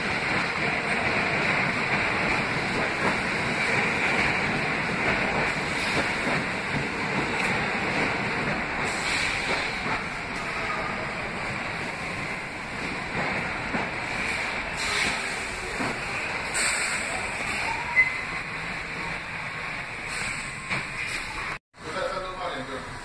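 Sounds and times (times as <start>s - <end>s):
subway train rumbling past: 0.0s - 23.0s
high wheel squeal: 16.5s - 18.6s.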